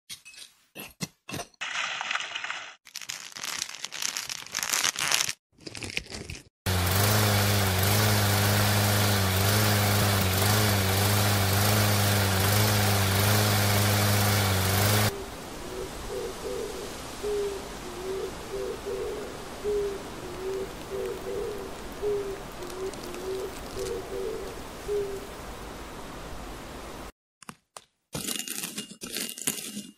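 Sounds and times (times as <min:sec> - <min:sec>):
tractor engine running: 0:06.7 - 0:15.1
bird hooting: 0:15.1 - 0:25.3.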